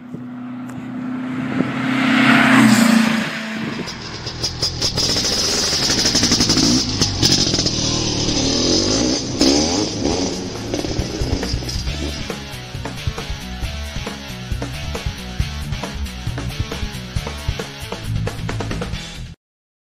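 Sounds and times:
vehicle engine revving: 0:00.0 - 0:13.6.

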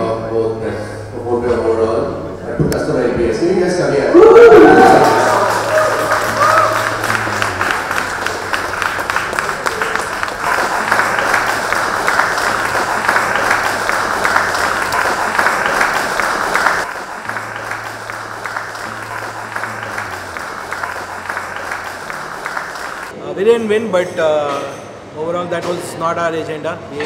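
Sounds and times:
audience applauding: 0:04.1 - 0:23.1.

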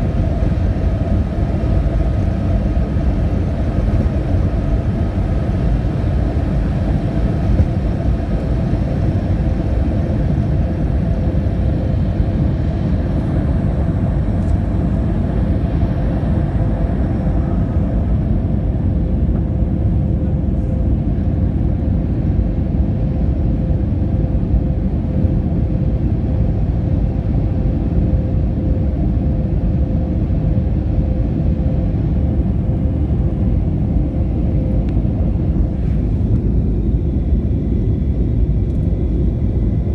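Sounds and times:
jet engine rumble in cabin: 0:00.0 - 0:39.9.

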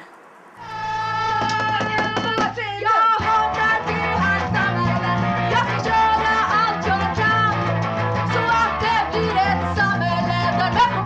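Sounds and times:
woman singing: 0:00.0 - 0:11.0
rock band playing: 0:03.2 - 0:11.0.

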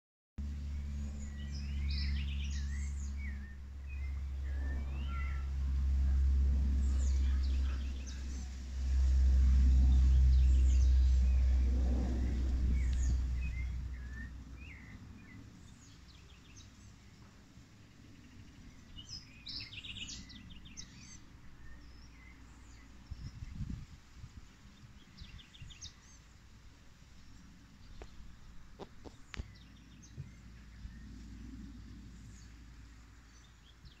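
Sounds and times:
loud low rumble: 0:00.4 - 0:17.3
birds chirping: 0:00.6 - 0:23.7, 0:27.8 - 0:34.0
bird trills: 0:01.2 - 0:08.5.

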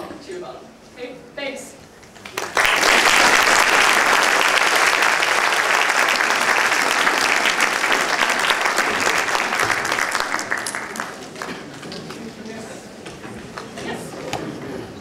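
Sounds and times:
audience applauding: 0:02.2 - 0:12.6.

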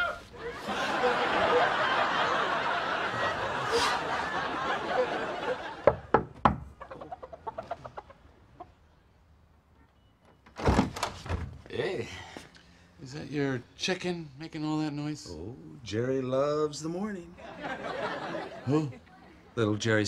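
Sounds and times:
audience laughing: 0:00.4 - 0:06.1, 0:17.4 - 0:19.5
knocking on a door: 0:05.8 - 0:06.7.

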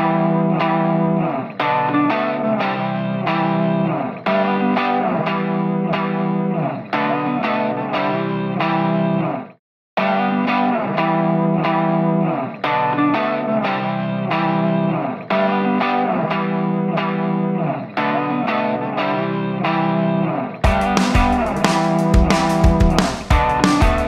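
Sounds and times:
plucked guitar with effects: 0:00.0 - 0:24.0
music with a beat: 0:20.6 - 0:24.0.

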